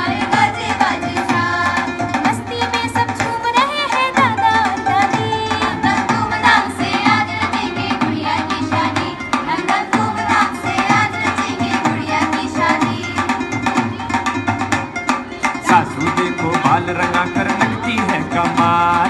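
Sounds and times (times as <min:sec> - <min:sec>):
film song with drums and melody: 0:00.0 - 0:19.0.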